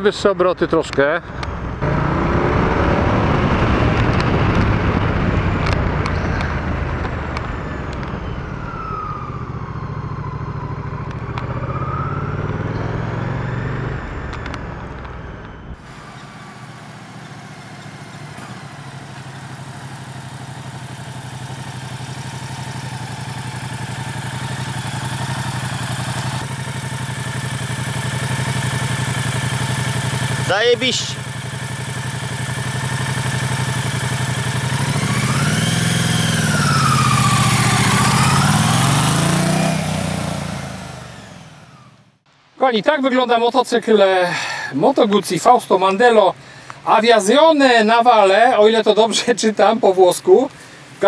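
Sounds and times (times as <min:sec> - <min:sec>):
motorcycle engine running: 0:01.2 - 0:42.2
wind rushing over microphone: 0:02.4 - 0:09.1.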